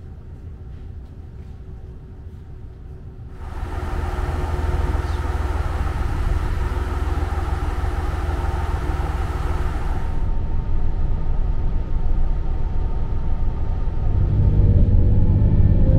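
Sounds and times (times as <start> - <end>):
vehicle low rumble: 0.0 - 15.9
steady hum: 3.1 - 15.9
hiss: 3.4 - 10.3.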